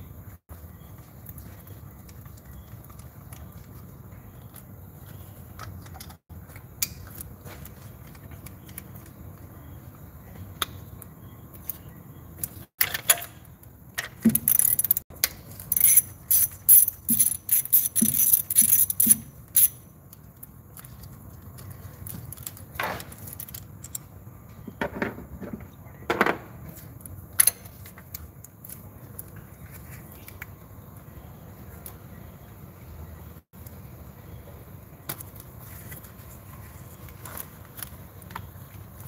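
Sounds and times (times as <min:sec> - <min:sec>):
metal tools clicking: 0:14.3 - 0:19.8.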